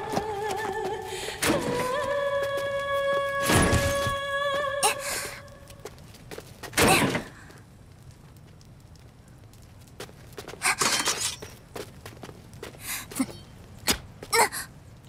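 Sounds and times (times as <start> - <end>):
footsteps on dirt: 9.8 - 14.3.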